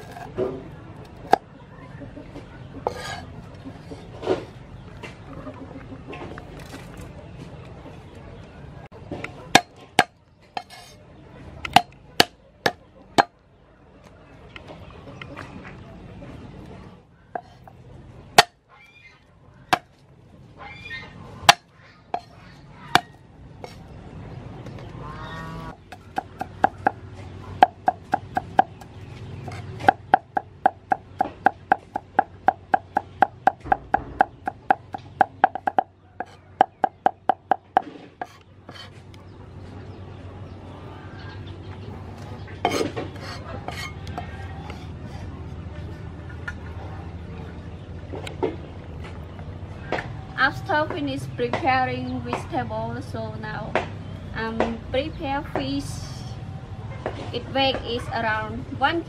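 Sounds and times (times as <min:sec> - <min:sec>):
cleaver chopping on wooden board: 0:11.7 - 0:13.3, 0:18.4 - 0:18.6, 0:25.9 - 0:27.0, 0:27.6 - 0:28.8, 0:29.5 - 0:38.9.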